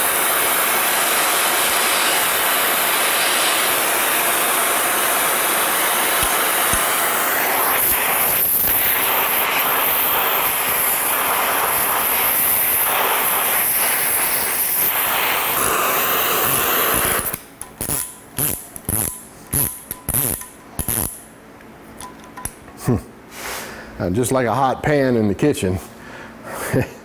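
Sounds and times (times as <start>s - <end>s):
torch flame hissing: 0.0s - 21.2s.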